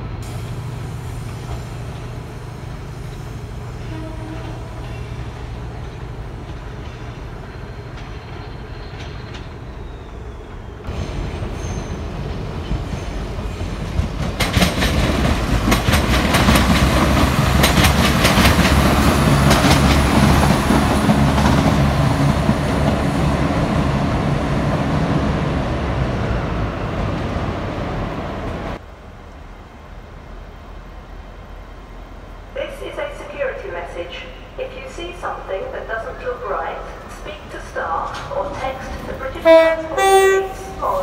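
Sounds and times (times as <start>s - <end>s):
train engines droning: 0.0s - 41.0s
train wheels clicking over joints: 0.2s - 23.5s.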